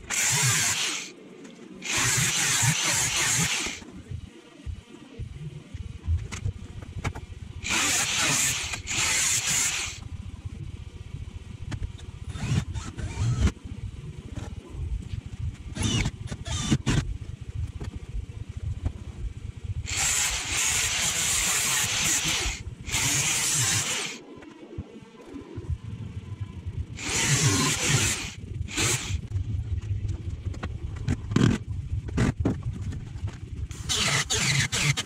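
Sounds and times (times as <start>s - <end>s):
power tool working steel: 0.0s - 1.1s, 1.8s - 3.8s, 7.6s - 10.0s, 19.9s - 24.2s, 27.0s - 29.2s.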